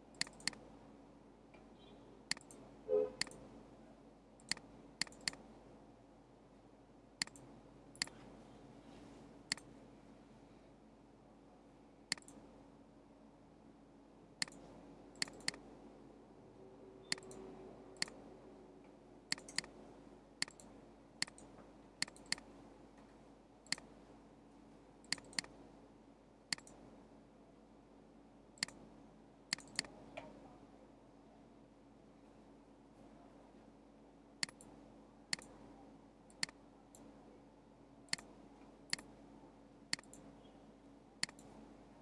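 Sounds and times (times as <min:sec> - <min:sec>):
faint steady hum: 0:00.0 - 0:42.0
computer mouse button clicking: 0:15.2 - 0:15.6, 0:17.1 - 0:17.4, 0:19.3 - 0:19.7, 0:29.5 - 0:29.9.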